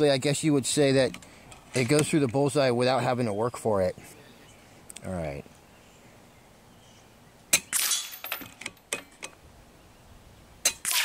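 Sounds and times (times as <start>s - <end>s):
air rifle shots: 7.5s - 8.2s, 10.6s - 11.0s.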